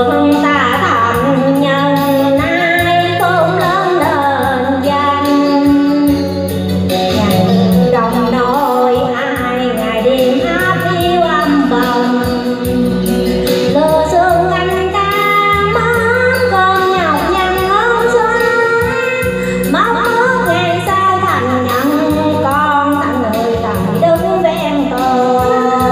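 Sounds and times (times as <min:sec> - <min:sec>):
backing music with beat and bass: 0:00.0 - 0:25.9
woman singing into microphone: 0:00.0 - 0:25.9.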